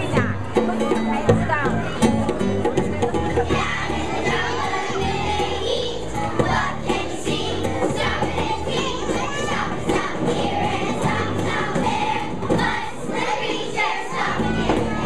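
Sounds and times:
children's choir singing: 3.4 - 15.0.

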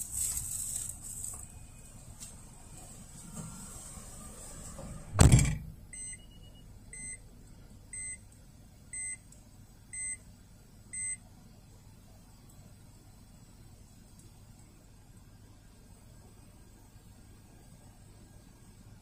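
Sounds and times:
loud thump: 5.1 - 5.8
short electronic beeps: 5.2 - 7.2.

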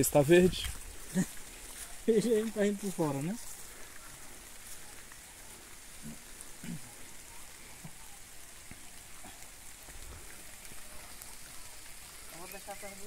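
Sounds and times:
light drizzle hissing: 0.0 - 13.0
soft raindrop ticks: 0.2 - 13.0
faint voices: 0.6 - 13.0.

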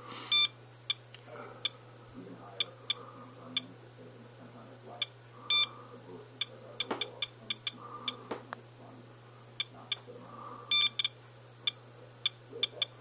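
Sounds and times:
dosimeter beeps: 0.3 - 1.0, 5.0 - 5.8, 6.4 - 8.2, 9.6 - 10.1, 10.7 - 13.0.

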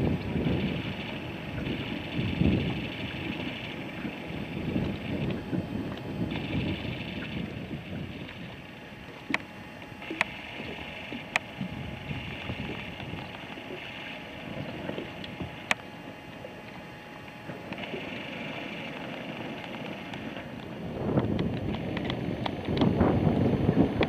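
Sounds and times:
wind on microphone: 0.0 - 13.8, 17.5 - 24.0
lake water: 0.0 - 24.0.

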